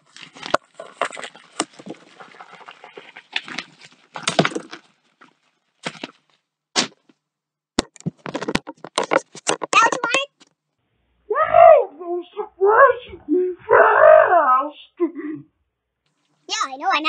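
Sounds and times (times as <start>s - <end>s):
knocks and clicks: 7.8s - 10.5s.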